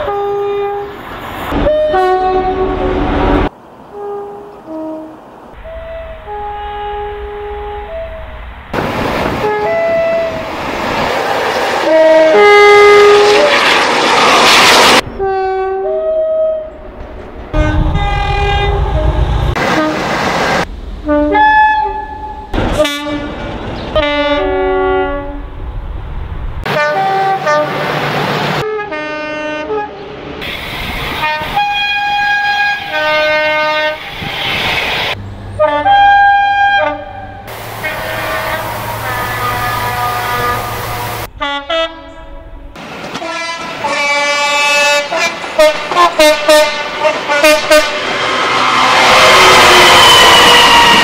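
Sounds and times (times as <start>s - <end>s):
diesel locomotive horn: 0.0s - 8.7s, 9.3s - 10.5s, 11.8s - 16.8s, 17.5s - 25.6s, 26.6s - 30.2s, 31.1s - 34.2s, 35.1s - 51.0s
diesel engine rumble: 16.7s - 24.1s, 35.2s - 35.8s.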